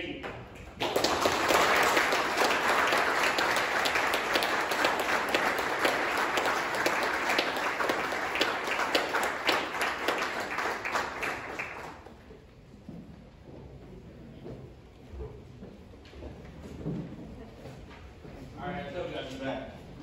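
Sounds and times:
audience applauding: 0:00.6 - 0:12.3.

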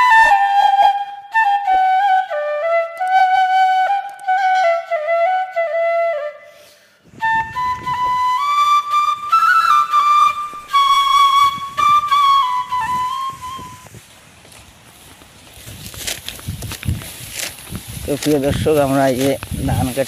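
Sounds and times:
solo flute melody: 0:00.0 - 0:14.0.

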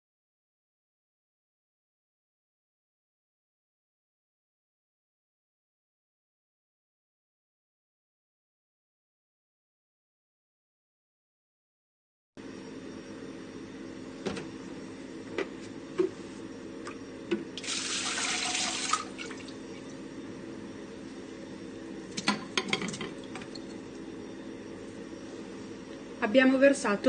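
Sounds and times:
machine hum: 0:12.4 - 0:27.0
liquid pouring into steel bowl: 0:17.6 - 0:19.6.

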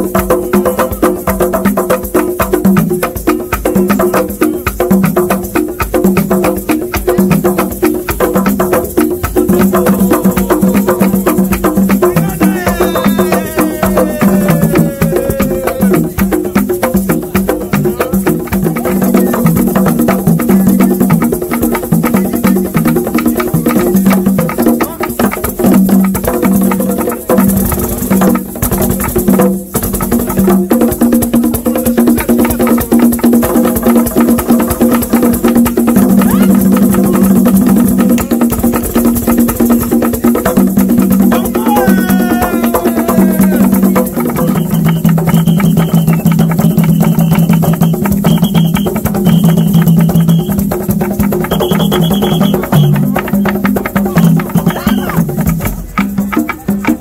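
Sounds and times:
slit drum clacks: 0:00.0 - 0:57.0
wooden hand drums: 0:00.0 - 0:57.0.

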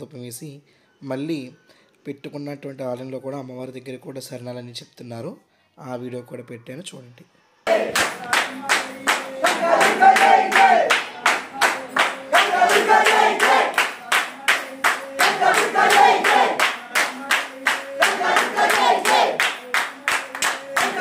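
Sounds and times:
group chanting: 0:07.6 - 0:21.0
hand-clapping: 0:07.7 - 0:21.0.

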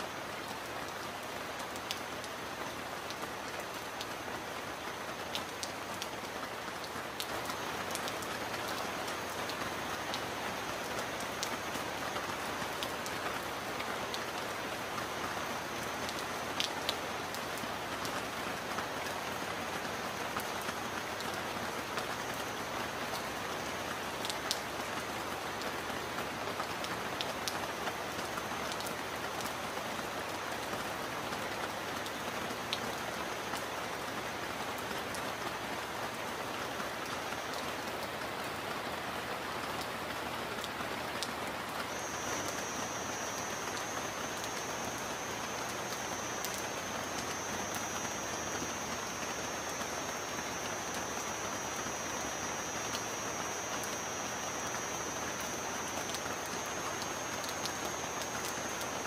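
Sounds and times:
heavy rain falling: 0:00.0 - 0:59.0
thin high steady tone: 0:41.9 - 0:59.0.

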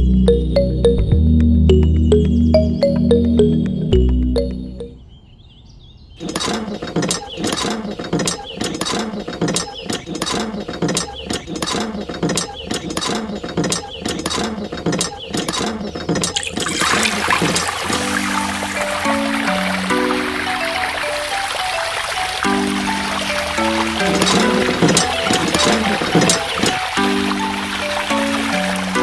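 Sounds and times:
water pouring into trough: 0:16.4 - 0:29.0.

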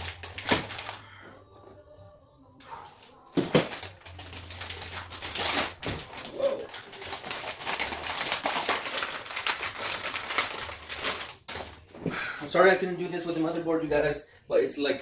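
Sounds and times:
plastic bag crinkling: 0:00.0 - 0:01.2, 0:03.3 - 0:11.8.

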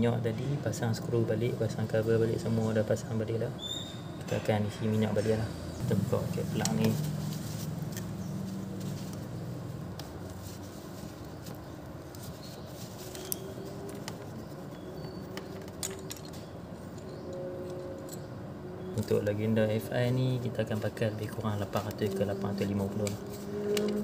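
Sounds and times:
low background hum: 0:00.0 - 0:24.0
tissue rubbing: 0:06.6 - 0:14.6.

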